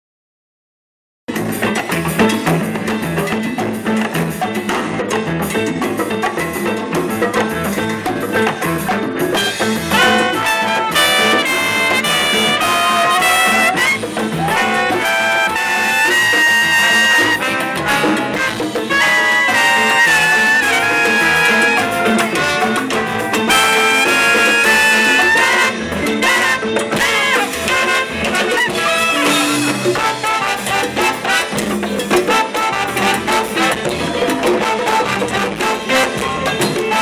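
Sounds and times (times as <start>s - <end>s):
congas and percussion: 1.3s - 37.0s
guitar rhythm: 1.3s - 37.0s
trumpet and trombones melody: 7.5s - 37.0s.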